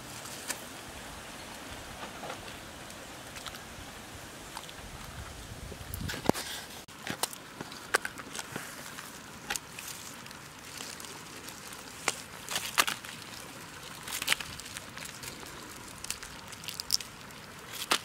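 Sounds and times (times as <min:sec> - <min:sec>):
bamboo baskets creaking: 0:00.0 - 0:18.0
faint steady hiss: 0:00.0 - 0:18.0
crabs and fish shifting: 0:06.0 - 0:18.0.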